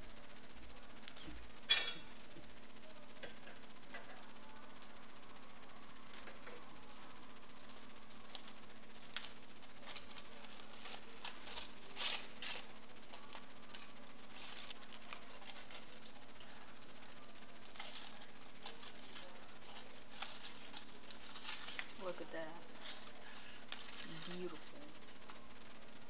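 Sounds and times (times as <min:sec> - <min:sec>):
aluminium foil crinkling: 0:07.6 - 0:25.8.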